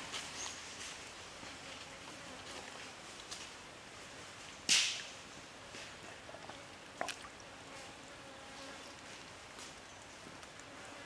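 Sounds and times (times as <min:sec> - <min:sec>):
running water: 0:06.1 - 0:07.7.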